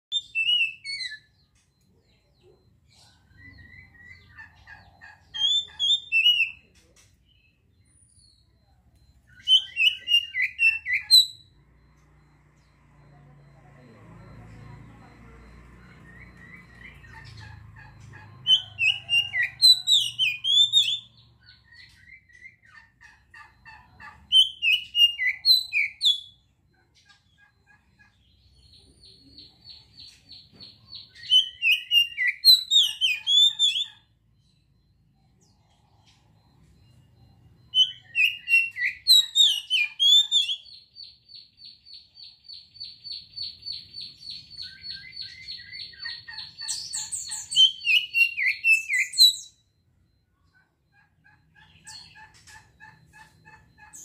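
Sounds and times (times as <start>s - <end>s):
bird whistled song: 0.1s - 1.4s, 37.7s - 49.6s.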